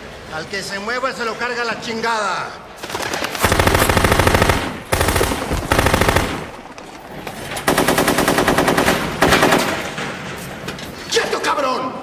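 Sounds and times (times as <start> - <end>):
automatic gunfire bursts: 2.8 - 6.7, 7.6 - 9.7.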